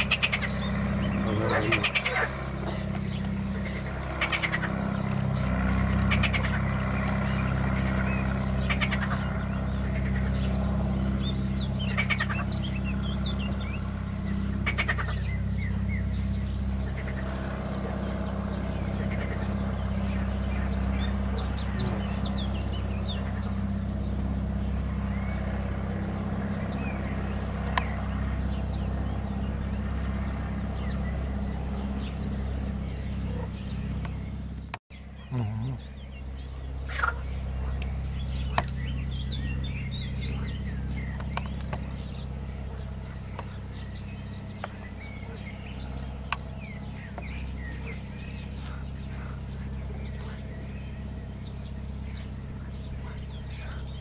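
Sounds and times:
frogs croaking: 0:00.0 - 0:54.0
small birds chirping: 0:00.0 - 0:54.0
steady low hum: 0:00.0 - 0:54.0.

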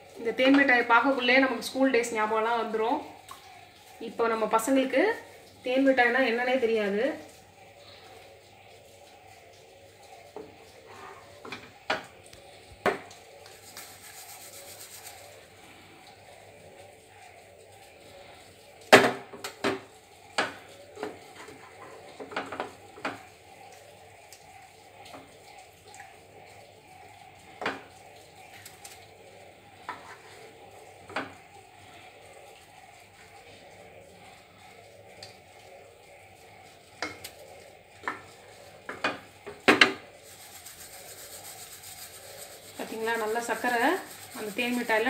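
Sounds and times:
gritty rubbing of sugar: 0:13.3 - 0:15.8, 0:40.1 - 0:45.0.

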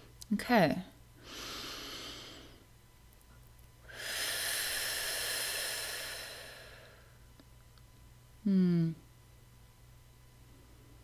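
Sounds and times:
person breathing deeply: 0:01.2 - 0:02.6, 0:03.9 - 0:07.3.

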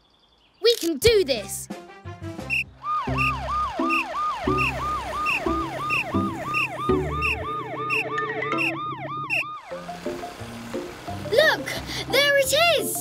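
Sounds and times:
background music with bass: 0:01.5 - 0:13.0
cartoon siren yelping: 0:02.8 - 0:09.8.

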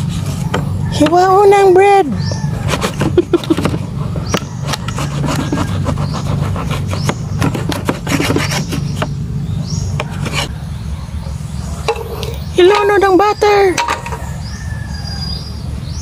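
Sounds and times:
knife sawing through crusty bread: 0:02.6 - 0:03.3, 0:04.0 - 0:09.1.

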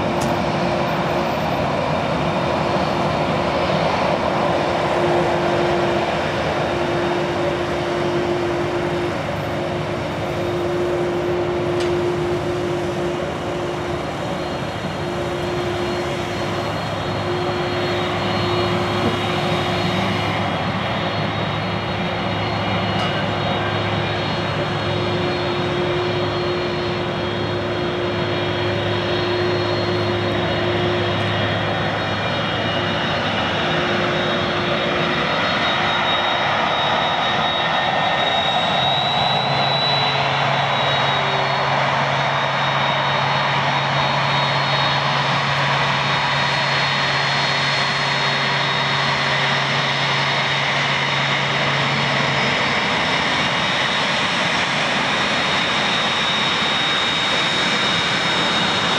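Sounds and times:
low engine hum: 0:00.0 - 0:35.2
jet engines whining: 0:00.0 - 0:58.9.

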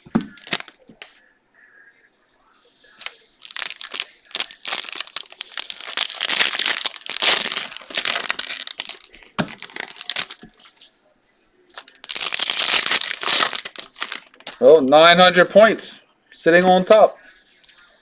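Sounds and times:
plastic wrapper tearing and crinkling: 0:00.0 - 0:00.8, 0:02.9 - 0:10.5, 0:11.8 - 0:14.6.

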